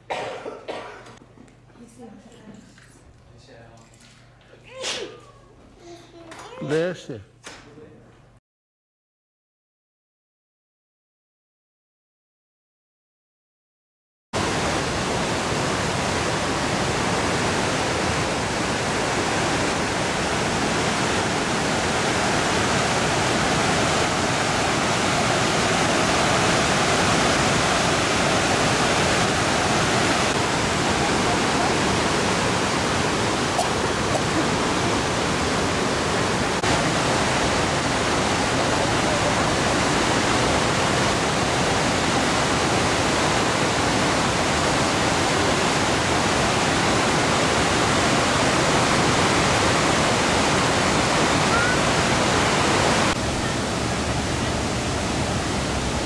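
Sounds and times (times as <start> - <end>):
rushing water: 14.4 - 56.0.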